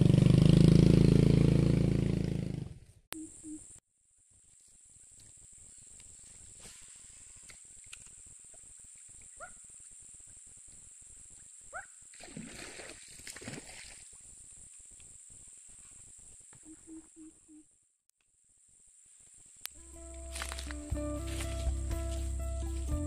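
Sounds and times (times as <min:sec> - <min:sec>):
high-pitched insect drone: 0:19.7 - 0:23.0.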